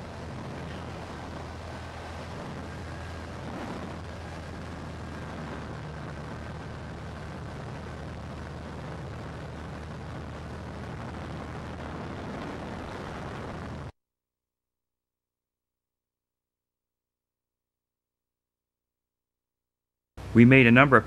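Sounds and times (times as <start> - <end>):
piston engine drone: 0.0 - 13.9
wind rushing past window: 0.0 - 13.9.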